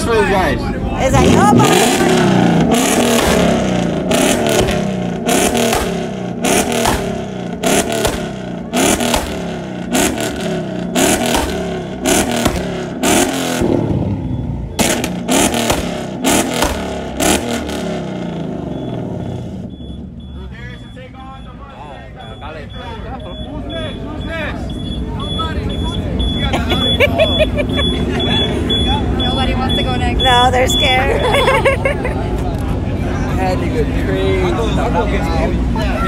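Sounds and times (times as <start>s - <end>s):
car engine revving: 0.0s - 21.2s
exhaust crack: 1.1s - 19.7s.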